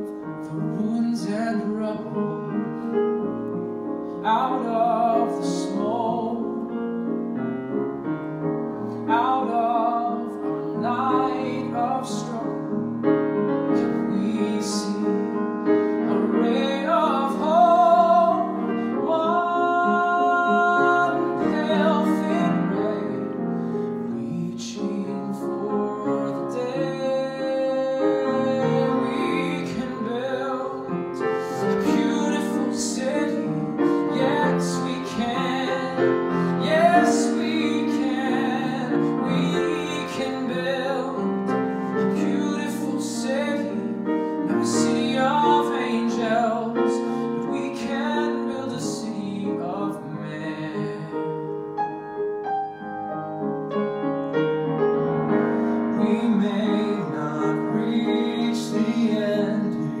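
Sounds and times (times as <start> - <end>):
man singing a slow ballad: 0.0 - 2.9, 4.0 - 7.0, 8.8 - 12.9, 13.7 - 51.6, 55.5 - 60.0
piano accompaniment: 0.0 - 60.0.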